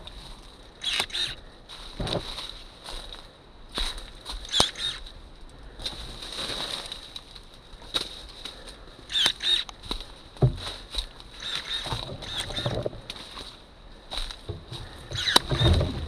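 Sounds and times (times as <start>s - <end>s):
leaves and branches rustling: 0.0s - 16.0s
bird chirps: 4.5s - 5.0s.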